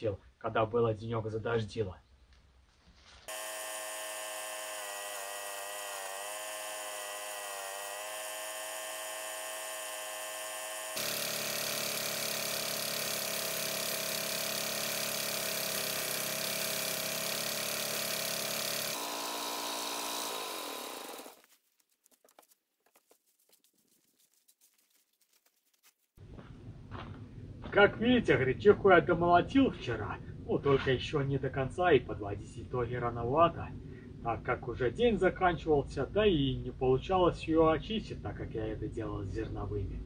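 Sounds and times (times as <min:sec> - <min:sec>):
faint rustles: 0:02.2 - 0:03.3
thresher machine whining: 0:03.3 - 0:21.4.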